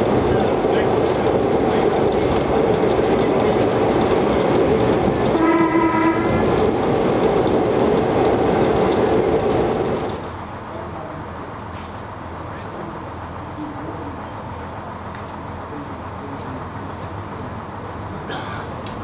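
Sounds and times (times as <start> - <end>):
railcar engine and wheel noise: 0.0 - 19.0
short horn blast: 5.3 - 6.4.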